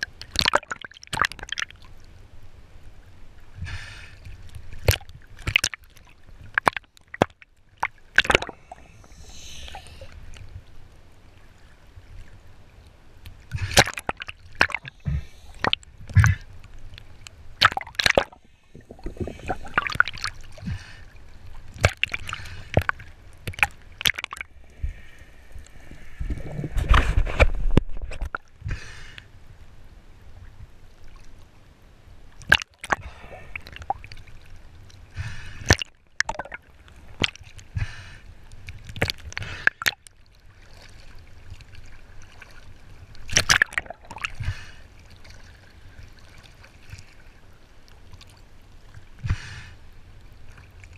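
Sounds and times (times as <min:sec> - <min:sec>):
sharp splashes and knocks: 0:04.8 - 0:08.7, 0:13.5 - 0:16.4, 0:17.6 - 0:20.8, 0:21.7 - 0:24.5, 0:35.6 - 0:36.6, 0:43.3 - 0:44.5
seawater sloshing and splashing: 0:17.1 - 0:28.5.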